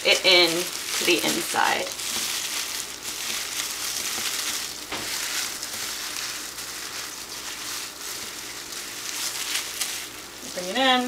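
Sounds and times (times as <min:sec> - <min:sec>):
plastic wrap crinkling: 0:00.0 - 0:11.0
sharp plastic crackle: 0:00.0 - 0:11.0.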